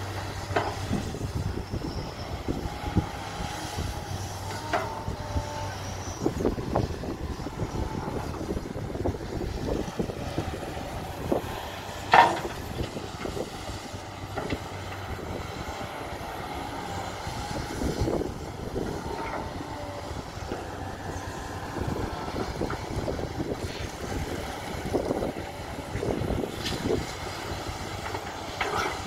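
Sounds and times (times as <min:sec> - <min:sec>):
excavator diesel engine: 0:00.0 - 0:29.0
metal clanks and knocks: 0:12.1 - 0:12.6.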